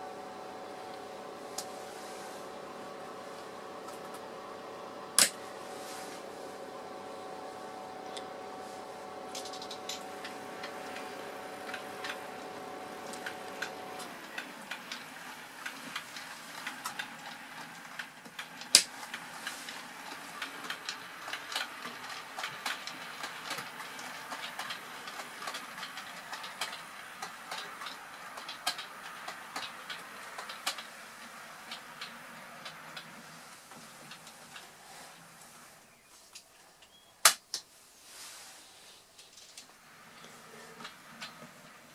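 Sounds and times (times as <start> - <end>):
steady hum: 0.0 - 36.8
model train wheels clicking: 9.3 - 35.5.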